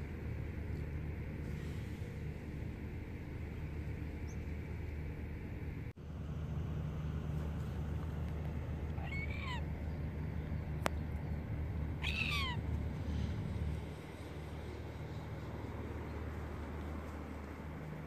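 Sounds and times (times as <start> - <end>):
gull calling: 9.0 - 9.7, 12.0 - 12.7.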